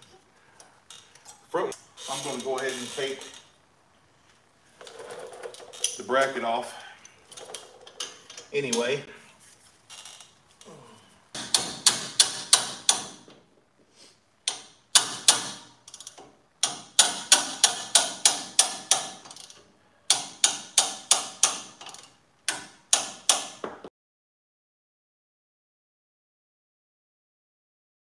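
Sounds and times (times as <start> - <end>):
ratchet wrench clicking: 14.4 - 23.6.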